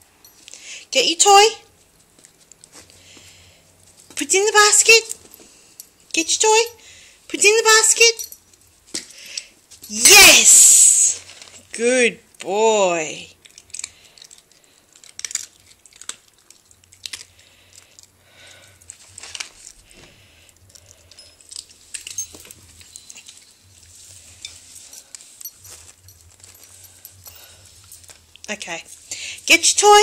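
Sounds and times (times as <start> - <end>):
quiet rustles and crinkles: 1.7 - 6.2, 8.2 - 9.9, 11.1 - 11.9, 13.3 - 30.0.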